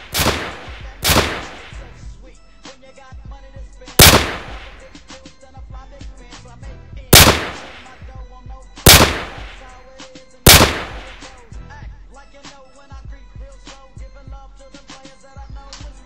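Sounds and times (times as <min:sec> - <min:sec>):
pistol gunshots: 0:00.0 - 0:02.0, 0:04.0 - 0:05.0, 0:07.1 - 0:08.1, 0:08.8 - 0:09.8, 0:10.5 - 0:11.4
hip-hop music with rapping: 0:00.0 - 0:16.0.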